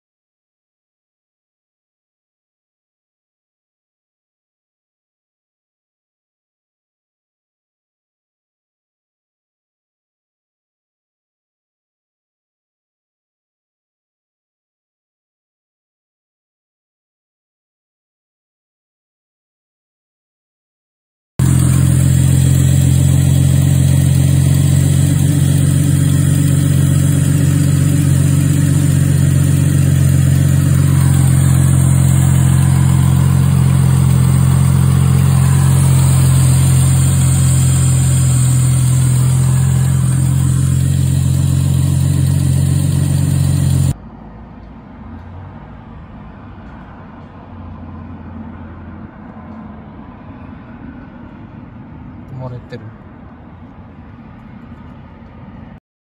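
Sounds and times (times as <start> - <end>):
car engine idling: 21.4 - 45.7.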